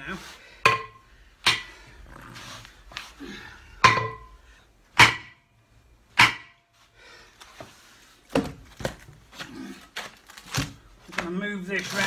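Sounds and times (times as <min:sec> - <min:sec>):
hammer striking steel: 0:00.6 - 0:01.7, 0:03.8 - 0:04.3, 0:05.0 - 0:05.4, 0:06.2 - 0:06.6.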